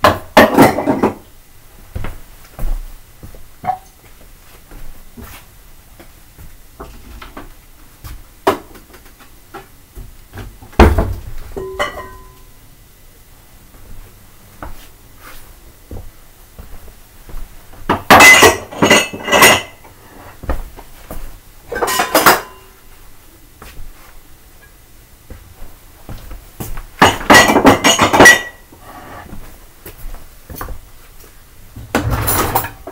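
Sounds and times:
dishes clinking and clattering: 0:00.0 - 0:01.2, 0:03.6 - 0:04.0, 0:11.6 - 0:12.5, 0:17.9 - 0:19.8, 0:21.7 - 0:22.8, 0:27.0 - 0:28.7, 0:31.9 - 0:32.9.

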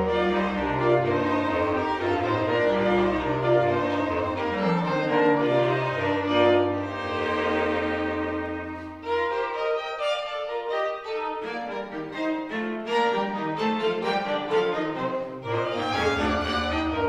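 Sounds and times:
bass clarinet low line: 0:00.0 - 0:09.1
sustained string chords: 0:00.0 - 0:17.0.

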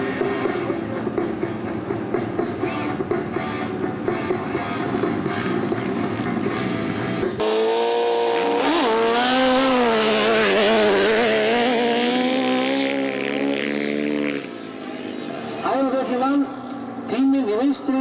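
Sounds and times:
motorcycles revving and accelerating: 0:00.0 - 0:17.3
rough motorcycle engine noise: 0:03.2 - 0:15.9.

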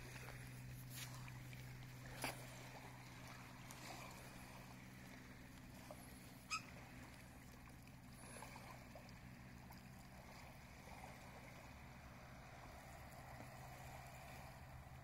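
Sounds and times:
small waves lapping: 0:00.0 - 0:15.0
steady low hum: 0:00.0 - 0:15.0.

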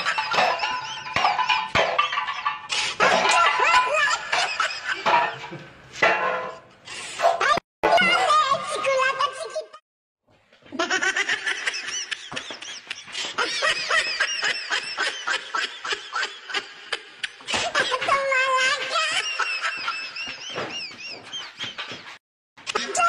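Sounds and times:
high-pitched laughter: 0:10.7 - 0:22.1.

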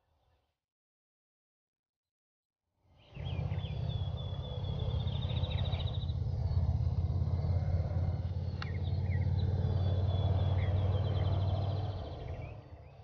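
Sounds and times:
vehicle engine idling: 0:03.4 - 0:12.5.

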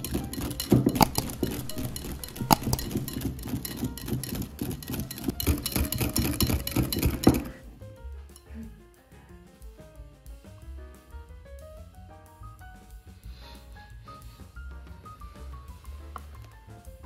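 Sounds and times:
whisk beating cream: 0:00.0 - 0:07.6
whisk wires clicking on glass: 0:00.0 - 0:07.6.

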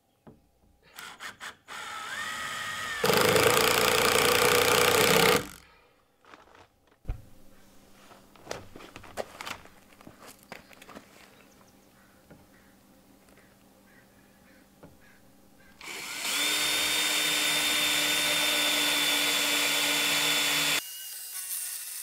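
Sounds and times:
cordless driver motor whining: 0:01.0 - 0:05.6, 0:15.8 - 0:20.8.

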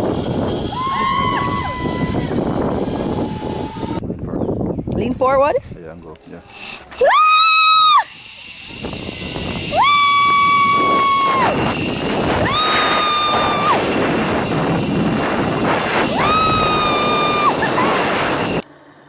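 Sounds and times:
wind rushing across microphone: 0:00.0 - 0:06.2, 0:07.8 - 0:18.6
woman screaming whoo: 0:00.7 - 0:02.4, 0:07.0 - 0:08.1, 0:09.7 - 0:11.6, 0:12.4 - 0:13.9, 0:16.1 - 0:17.8.

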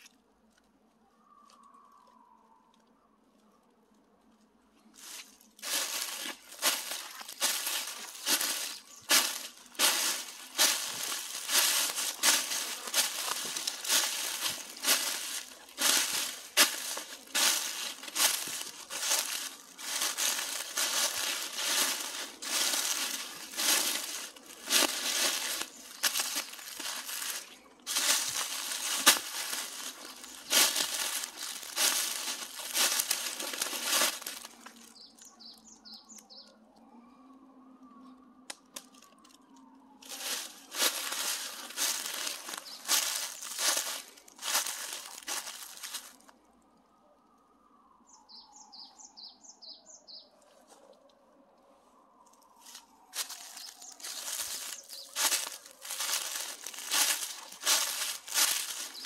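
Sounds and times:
footsteps crunching through leaves: 0:04.9 - 0:35.6, 0:40.0 - 0:46.3, 0:52.6 - 0:59.0.

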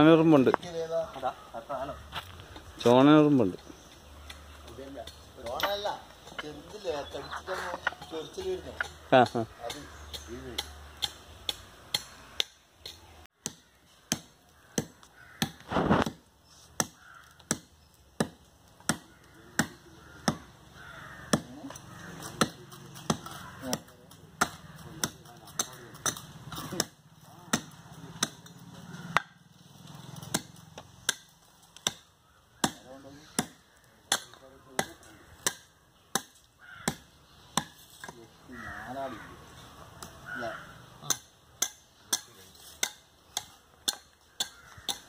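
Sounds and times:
axe chopping stone block: 0:30.3 - 0:32.0.

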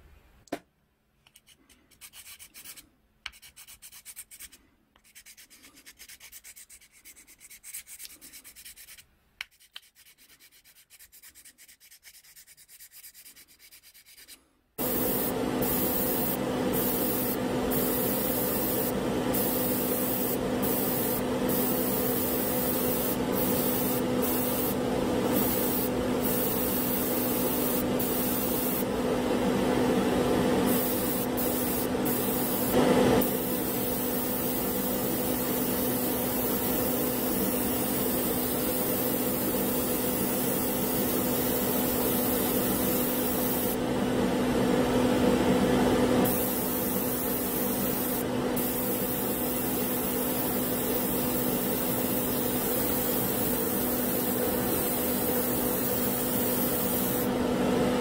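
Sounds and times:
sanding stick rubbing plastic: 0:01.4 - 0:14.4
exhaust fans humming: 0:14.8 - 0:34.3.

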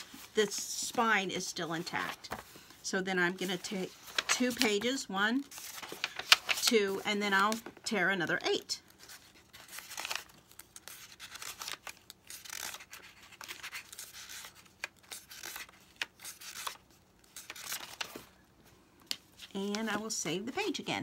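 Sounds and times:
paper pages being torn: 0:09.1 - 0:18.2.

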